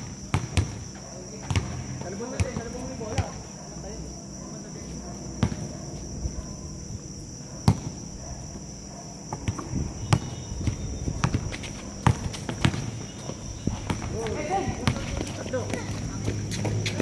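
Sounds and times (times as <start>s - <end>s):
basketball bouncing on hard court: 0.3s - 3.4s, 5.4s - 5.7s, 7.6s - 8.0s, 9.3s - 15.8s.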